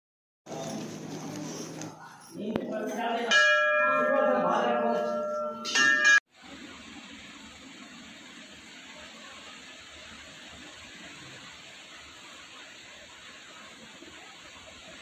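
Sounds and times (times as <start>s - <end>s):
temple bell ringing: 2.9s - 6.2s.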